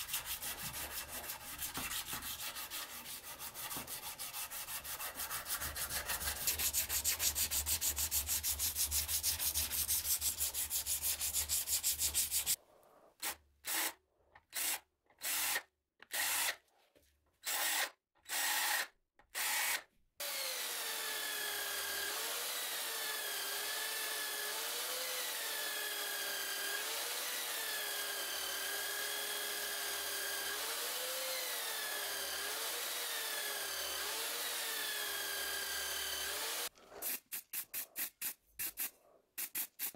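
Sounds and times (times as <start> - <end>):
electric buffing wheel whining: 30.1 - 36.7.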